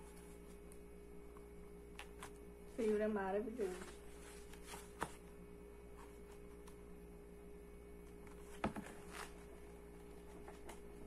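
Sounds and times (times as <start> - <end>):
faint steady hum: 0.0 - 11.0
book pages turning: 1.9 - 2.9, 3.6 - 6.9, 8.0 - 11.0.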